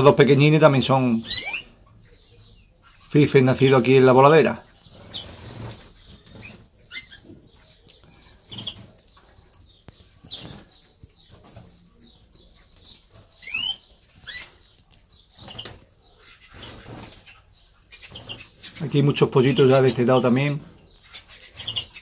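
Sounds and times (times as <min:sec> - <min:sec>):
high bird chirps: 0:01.2 - 0:22.0
birds fluttering wings: 0:04.8 - 0:12.0, 0:12.6 - 0:22.0.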